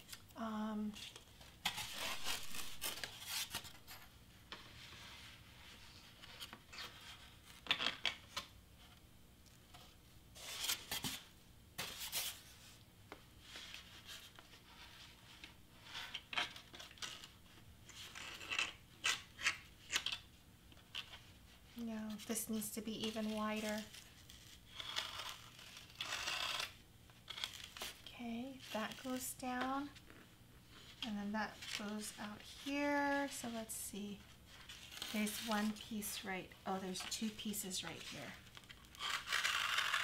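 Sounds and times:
foam board scraping on paper: 0:21.8 - 0:28.0, 0:34.4 - 0:36.2, 0:39.0 - 0:40.0.

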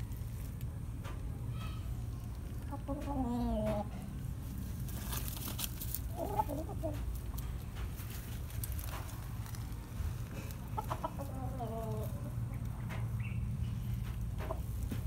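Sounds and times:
rooster clucks: 0:06.0 - 0:07.4, 0:10.5 - 0:12.5.

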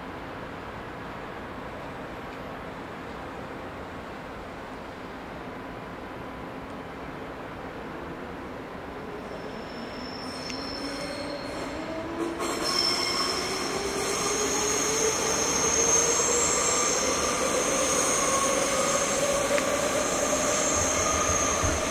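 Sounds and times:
wheels squealing on rails: 0:09.0 - 0:21.9.

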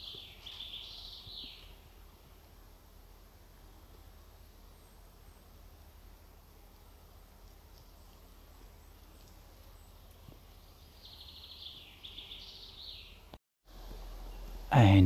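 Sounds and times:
songbird high trill: 0:00.0 - 0:01.8
faint woodland ambience: 0:00.0 - 0:15.0.

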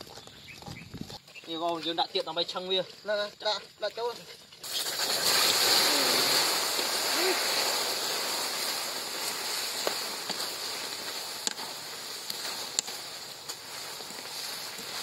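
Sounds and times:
sauce boiling and sizzling: 0:04.4 - 0:15.0.

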